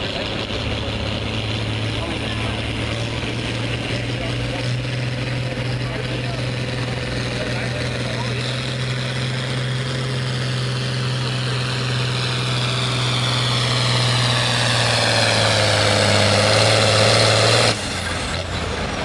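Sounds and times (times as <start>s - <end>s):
diesel tractor engine working hard: 0.0s - 19.0s.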